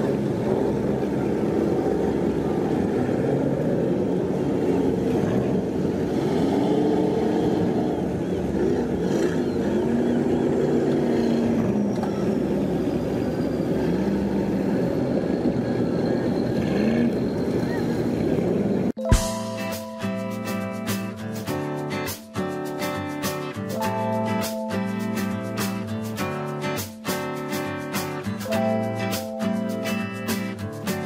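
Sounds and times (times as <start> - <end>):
boat motors rumbling: 0.0 - 18.9.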